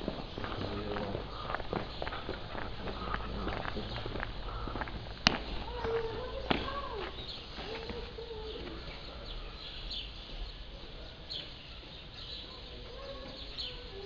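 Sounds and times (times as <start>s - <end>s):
birds chirping: 0.0s - 14.0s
street ambience: 0.0s - 14.0s.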